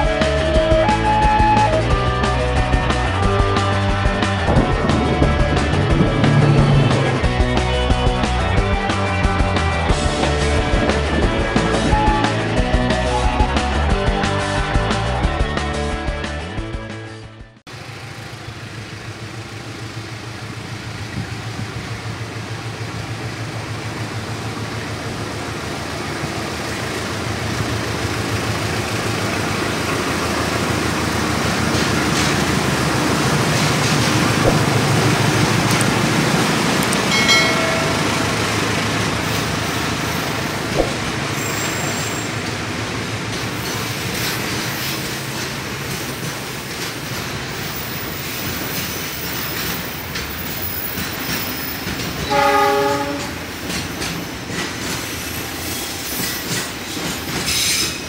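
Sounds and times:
wheels clattering on rails: 0.0 - 13.2, 17.7 - 58.0
locomotive engine drone: 0.0 - 58.0
high squeal: 41.3 - 42.4.

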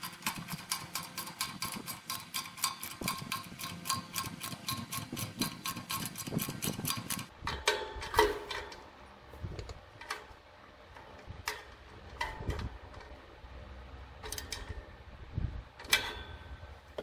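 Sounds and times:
ratchet tool clicking: 0.0 - 7.3.

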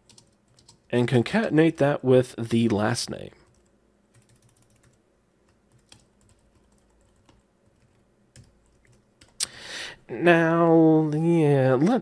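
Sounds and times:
computer keyboard typing: 0.0 - 0.9, 3.4 - 9.4.

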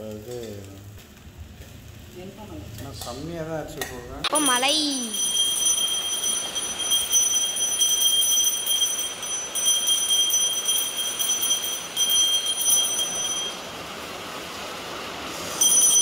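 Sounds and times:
brass handbell ringing rapidly: 4.3 - 13.6, 15.6 - 16.0.

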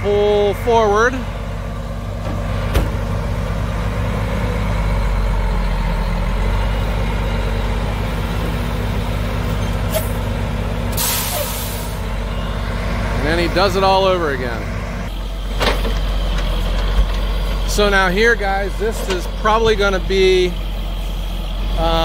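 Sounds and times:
diesel truck engine idling: 0.0 - 22.0
air brake hiss: 10.9 - 12.0.

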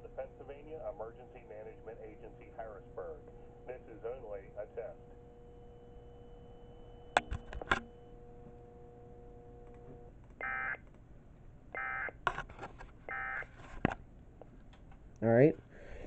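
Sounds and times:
buzzy data tone bursts: 0.0 - 10.8
sharp clicks: 7.1 - 8.6.

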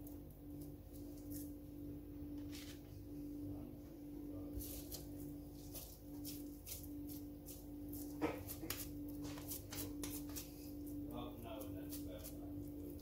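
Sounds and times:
steady low hum: 0.0 - 13.0
hands pressing meat mixture: 4.7 - 13.0.

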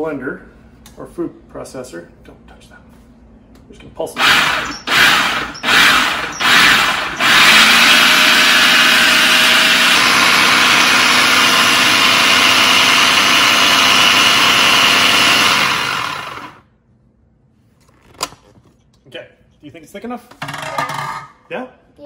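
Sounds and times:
blender motor running: 4.2 - 16.6.

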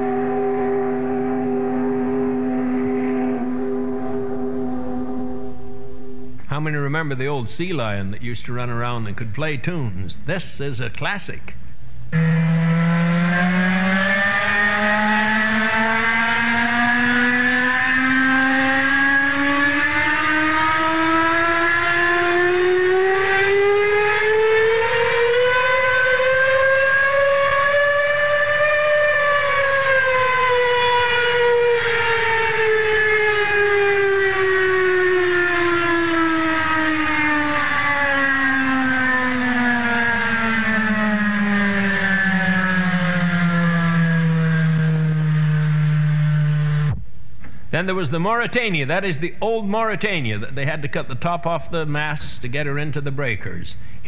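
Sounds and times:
steam whistle long blast: 0.0 - 6.4, 12.2 - 46.9.

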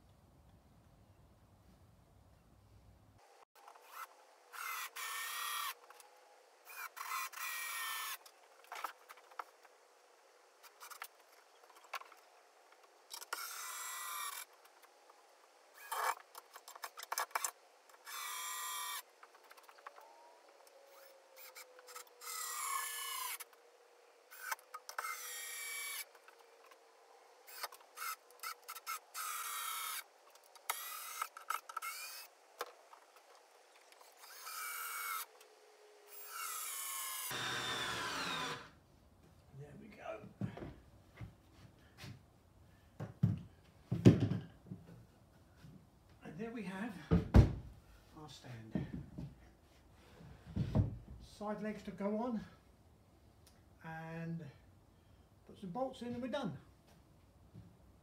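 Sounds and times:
cordless drill driving screws: 3.8 - 5.8, 6.7 - 8.2, 13.2 - 14.5, 17.2 - 19.1, 20.9 - 23.5, 24.3 - 26.2, 27.5 - 30.1, 30.7 - 32.3, 34.0 - 35.5, 36.1 - 38.8.

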